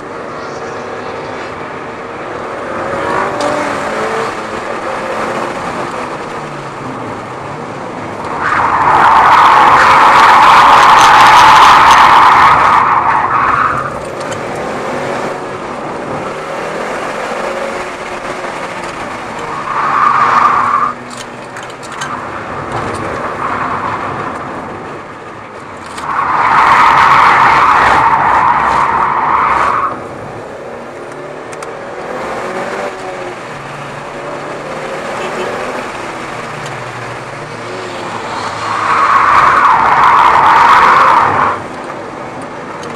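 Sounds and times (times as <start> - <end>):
car engine under load: 0.0 - 42.9.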